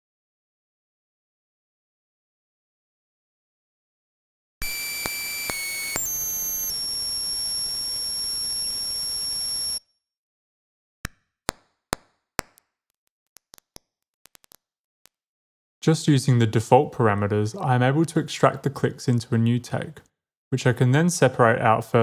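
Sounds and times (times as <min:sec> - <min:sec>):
high electronic test tone: 0:04.6 - 0:09.8
sharp pops: 0:11.1 - 0:15.2.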